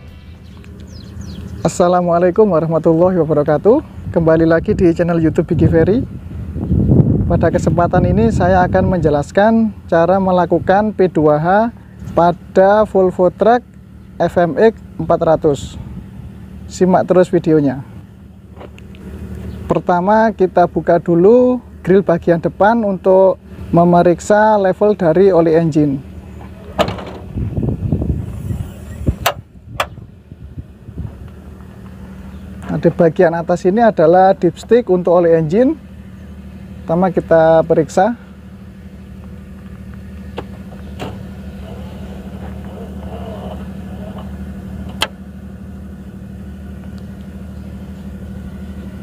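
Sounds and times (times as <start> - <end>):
engine idling: 0.0 - 49.0
truck grille panel rattling: 26.4 - 27.6, 29.1 - 30.1, 40.3 - 45.2
sharp latch clicks: 26.7 - 27.3, 29.2 - 30.0, 40.4 - 41.2.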